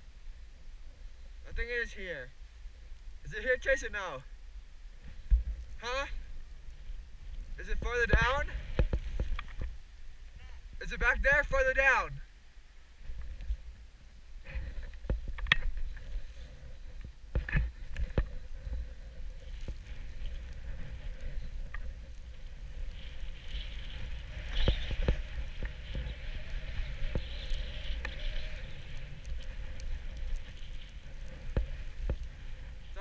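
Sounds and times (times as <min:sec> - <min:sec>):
wind rumbling on microphone: 0:00.0 - 0:33.0
snowboard scraping over snow: 0:17.5 - 0:33.0.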